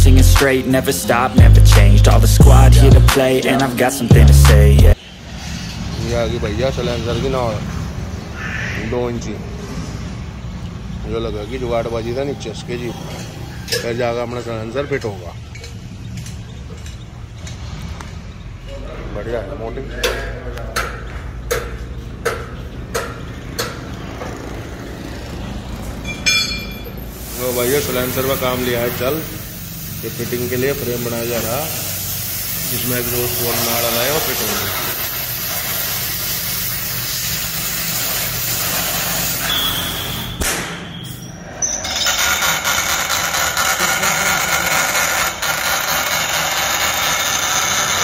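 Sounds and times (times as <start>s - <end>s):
cutting torch hissing: 27.1s - 40.4s
sharp knock: 40.4s - 40.9s.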